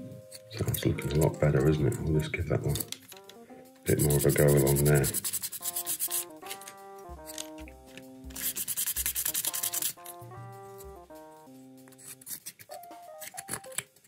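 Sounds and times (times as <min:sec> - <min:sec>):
light background melody: 0:00.0 - 0:14.0
pen scratching on metal plate: 0:03.9 - 0:07.6, 0:08.3 - 0:11.0, 0:11.8 - 0:13.8.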